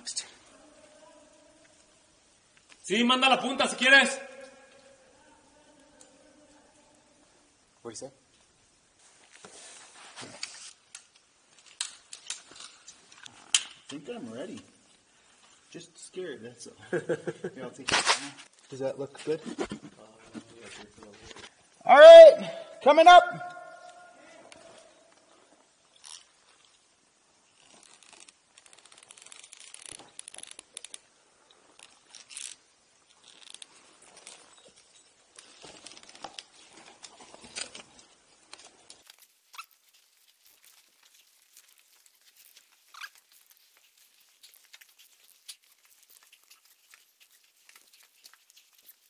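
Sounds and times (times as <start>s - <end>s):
rope and gear rustling on rock: 9.0s - 13.9s, 24.5s - 49.0s.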